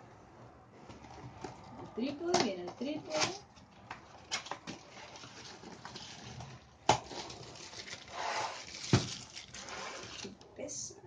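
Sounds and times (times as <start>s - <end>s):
cardboard scraping and rustling: 3.0s - 10.4s.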